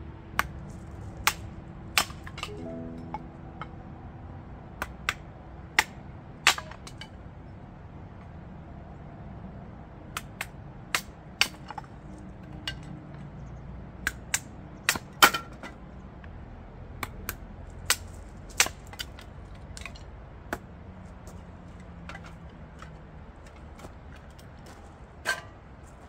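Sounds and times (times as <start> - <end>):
hatchet chopping firewood: 1.2 - 2.5, 10.2 - 11.9, 17.0 - 20.7.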